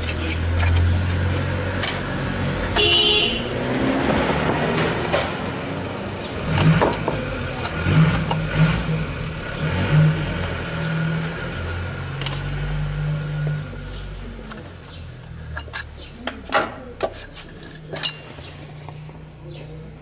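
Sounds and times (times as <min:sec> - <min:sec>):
short horn toot: 0:02.8 - 0:03.5.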